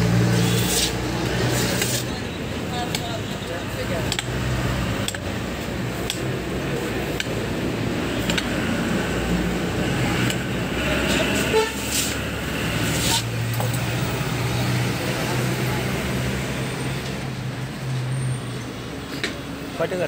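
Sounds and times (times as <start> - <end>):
street traffic: 0.0 - 20.0
vehicle horn: 10.9 - 12.2.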